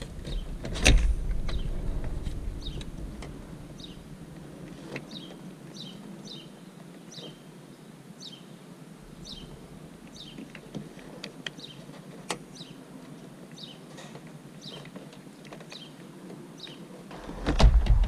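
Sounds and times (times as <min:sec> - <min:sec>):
small bird chirping: 0:02.6 - 0:03.0, 0:03.7 - 0:04.1, 0:05.0 - 0:07.5, 0:08.2 - 0:08.6, 0:09.2 - 0:10.6, 0:11.5 - 0:11.9, 0:12.5 - 0:12.8, 0:13.6 - 0:13.9, 0:15.7 - 0:16.9.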